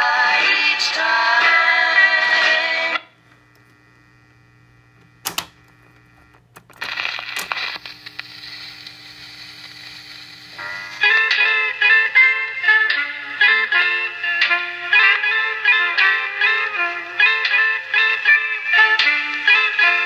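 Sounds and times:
record music playing: 0.0s - 5.2s, 6.8s - 20.0s
amplifier mains hum: 0.0s - 20.0s
record changer clicking and clunking: 5.0s - 7.6s
stylus hissing in the groove: 7.6s - 11.2s.

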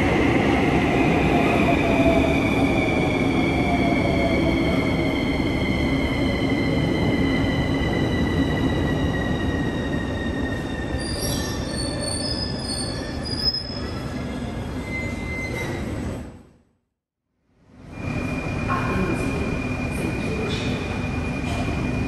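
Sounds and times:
metro train rumble and whine: 0.0s - 16.7s, 17.5s - 22.0s
high wheel squeals: 10.6s - 16.1s.

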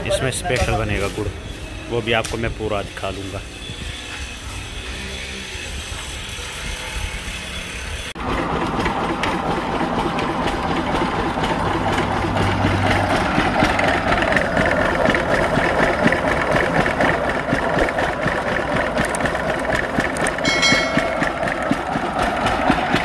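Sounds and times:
sugarcane crusher clattering: 8.2s - 23.0s
high-pitched tone: 20.4s - 21.5s.

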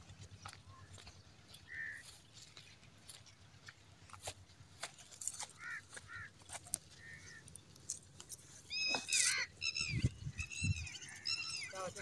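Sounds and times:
bird squawking: 1.6s - 2.1s, 5.5s - 6.4s, 7.0s - 7.4s, 8.6s - 12.0s.

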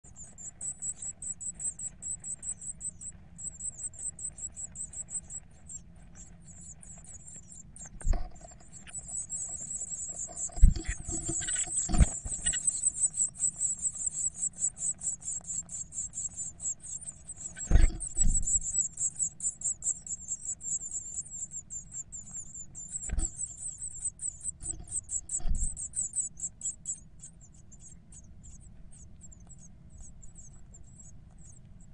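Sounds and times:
nestlings begging calls: 0.1s - 31.6s
dull knocks in nest box: 10.4s - 12.7s, 23.0s - 23.4s.

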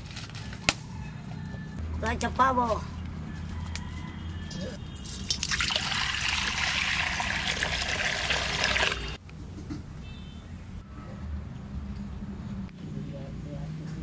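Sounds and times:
water pouring into metal wok: 5.0s - 9.2s.

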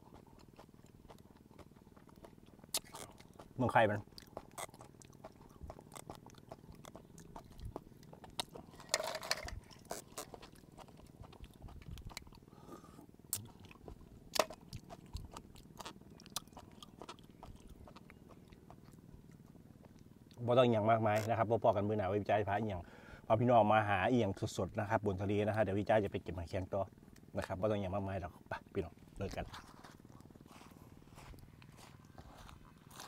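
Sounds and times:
chewing clicks and smacks: 0.0s - 12.5s, 13.3s - 20.4s, 29.0s - 33.0s
slurping: 0.4s - 18.7s.

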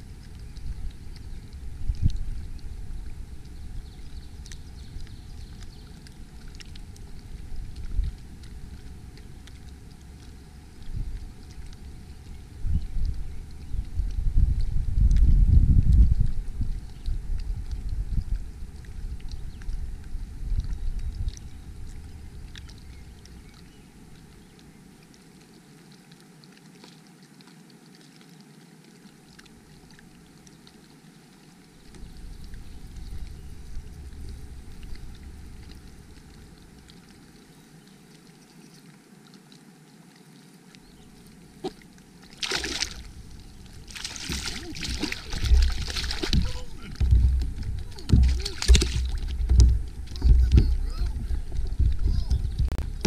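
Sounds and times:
water lapping around kayak: 0.0s - 53.0s
loud water splashes: 41.5s - 53.0s.

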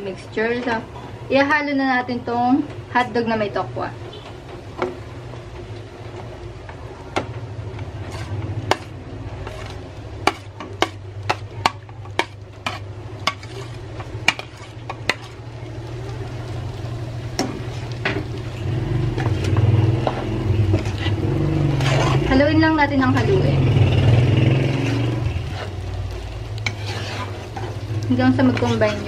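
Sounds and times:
stirring in a pan: 2.1s - 29.0s
spatula scraping a plate: 8.0s - 15.4s, 19.2s - 22.3s, 26.6s - 27.8s, 28.4s - 29.0s
spatula tapping plate and pan: 10.2s - 13.6s.

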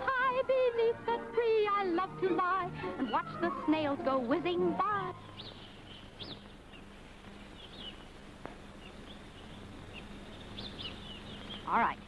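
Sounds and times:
steady low hum: 0.0s - 12.0s
small birds chirping: 2.8s - 12.0s.

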